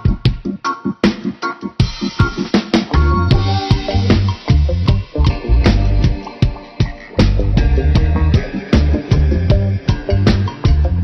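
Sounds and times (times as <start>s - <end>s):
fast drum beat: 1.8s - 11.0s
bass line: 3.0s - 11.0s.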